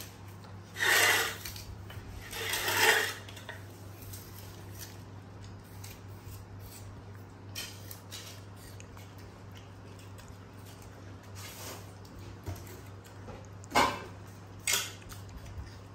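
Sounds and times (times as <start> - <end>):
low steady hum: 0.0 - 15.9
monkeys crunching apple: 0.0 - 15.9
rasping scrape: 0.7 - 5.0.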